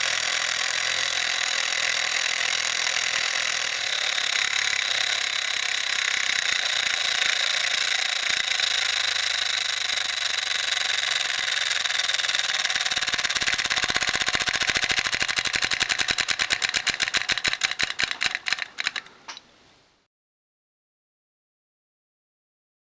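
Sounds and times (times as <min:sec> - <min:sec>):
toy steam engine chuffing: 0:00.0 - 0:19.2.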